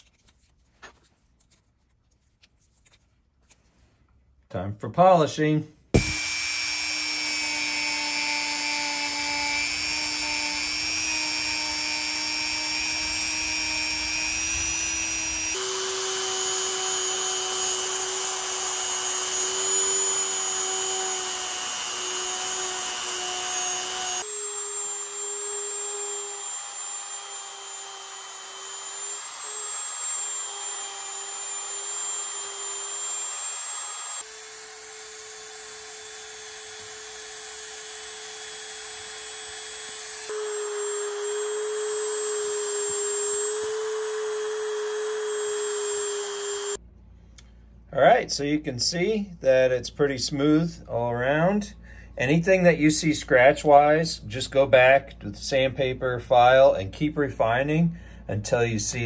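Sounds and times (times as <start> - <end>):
rotary tool motor whine: 6.0 - 46.8.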